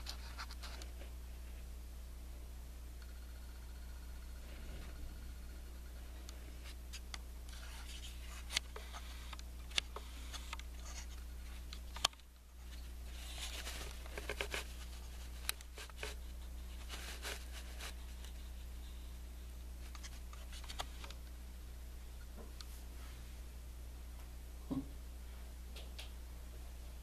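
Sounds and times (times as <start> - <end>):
steady low hum: 0.0 - 27.0
scratchy rustles: 12.6 - 19.0.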